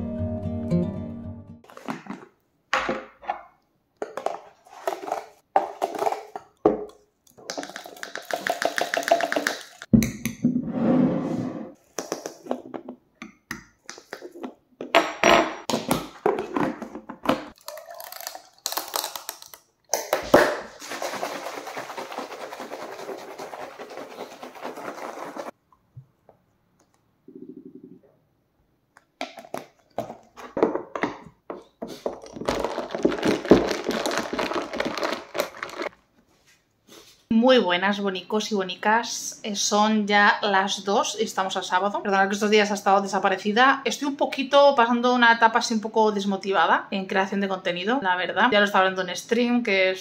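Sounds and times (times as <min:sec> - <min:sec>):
granules poured through funnel: 0:20.7 - 0:25.6, 0:32.2 - 0:35.9.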